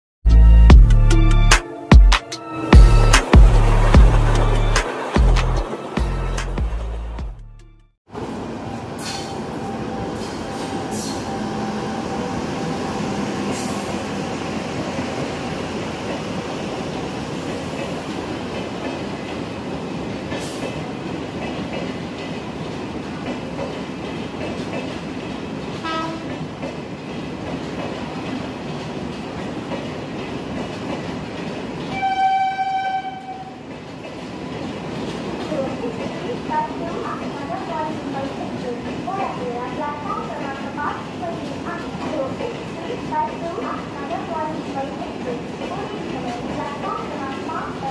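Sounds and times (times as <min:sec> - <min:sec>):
train wheels rumbling on rails: 0:02.7 - 0:07.3, 0:08.1 - 0:47.9
train horn: 0:25.8 - 0:26.4, 0:31.9 - 0:33.6.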